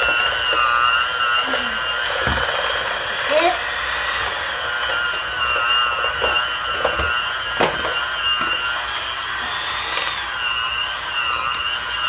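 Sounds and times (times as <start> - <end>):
electric hand mixer whirring: 0.0 - 12.0.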